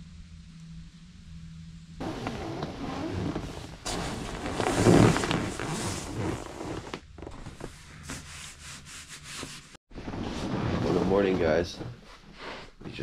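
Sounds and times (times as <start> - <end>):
fabric rustling: 2.0 - 12.4.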